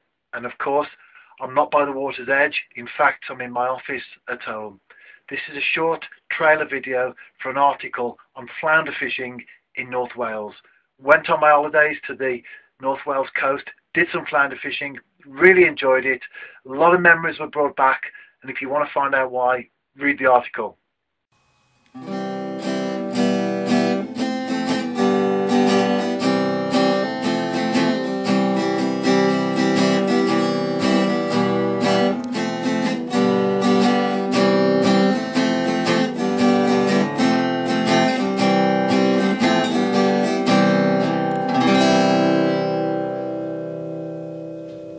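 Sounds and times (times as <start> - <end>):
acoustic guitar strumming: 21.4 - 44.9.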